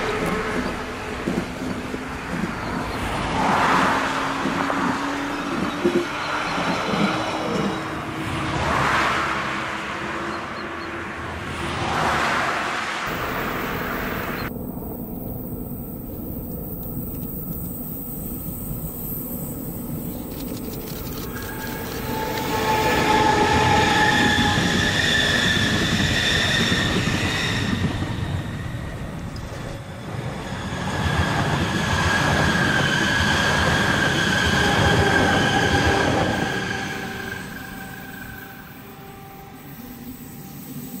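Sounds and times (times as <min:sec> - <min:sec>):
train rail and wheel noise: 0:00.0 - 0:41.0
high whining tones: 0:13.1 - 0:41.0.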